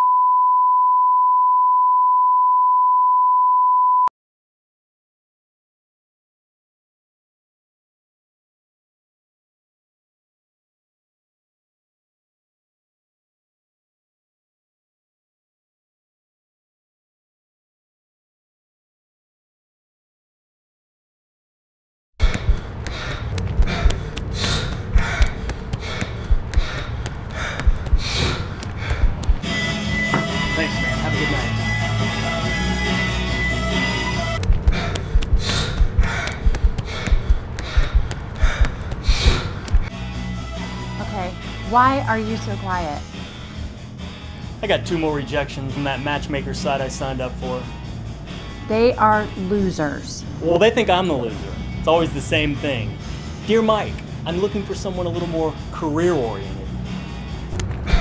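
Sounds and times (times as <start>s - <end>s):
dull low thuds: 22.2s - 29.4s, 34.4s - 39.9s
person breathing hard: 22.2s - 29.4s, 34.4s - 39.9s.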